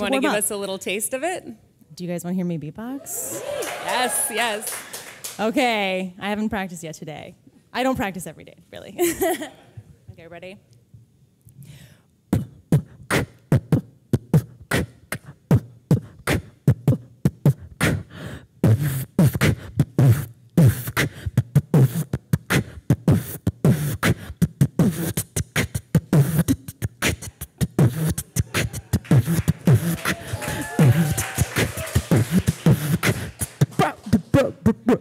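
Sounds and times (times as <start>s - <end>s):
woman beatboxing: 0.0s - 0.6s, 12.3s - 35.0s.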